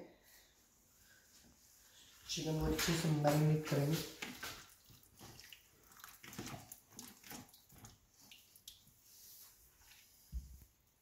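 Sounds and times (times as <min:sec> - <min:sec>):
wet squelching of hands in marinade: 0:02.4 - 0:09.3.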